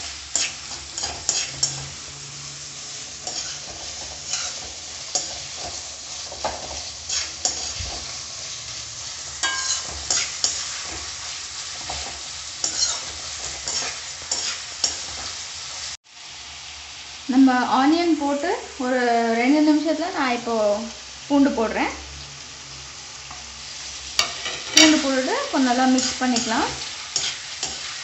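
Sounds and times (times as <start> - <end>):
onions sizzling in oil: 0.0 - 28.0
metal spoon scraping pan: 0.3 - 2.0, 3.2 - 8.2, 9.3 - 15.3, 24.2 - 28.0.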